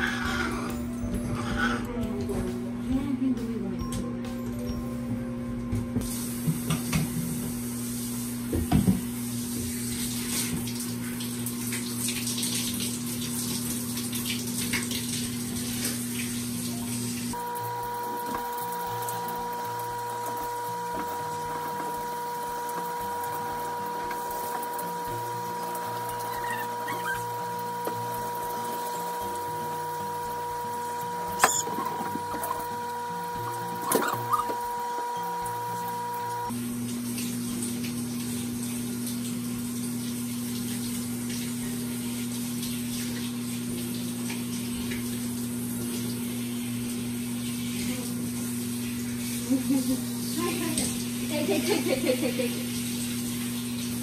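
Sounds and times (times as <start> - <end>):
shower water spraying: 6.0 - 54.0
two-tone whine: 17.4 - 36.5.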